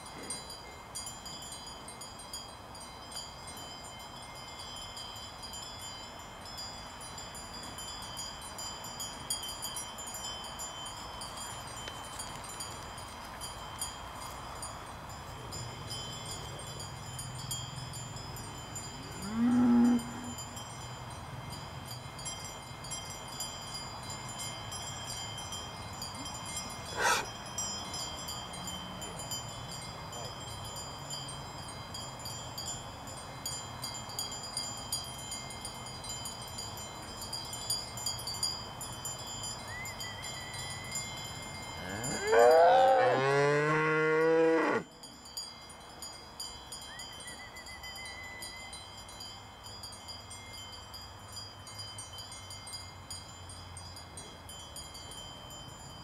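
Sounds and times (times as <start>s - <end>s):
cowbells clanking: 0.0s - 56.0s
cow mooing: 19.2s - 20.3s, 27.0s - 27.3s, 41.8s - 44.8s.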